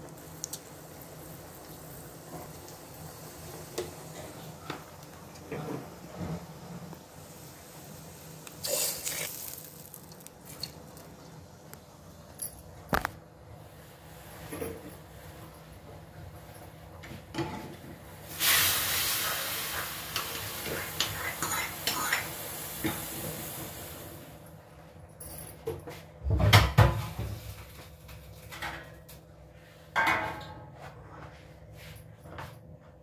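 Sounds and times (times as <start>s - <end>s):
steady hiss: 0.0s - 12.5s, 18.1s - 24.4s
pots and utensils clattering: 14.4s - 15.1s, 17.0s - 18.0s, 29.9s - 31.0s.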